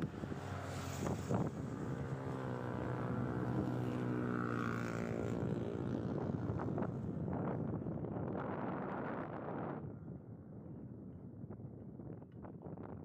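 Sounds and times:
wind buffeting microphone: 0:00.0 - 0:03.8, 0:04.4 - 0:13.0.

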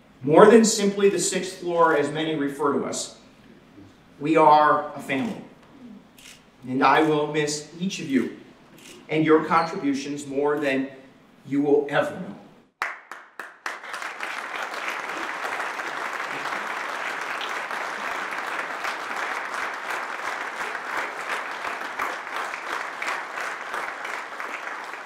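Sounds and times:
audience applauding: 0:12.8 - 0:25.0.

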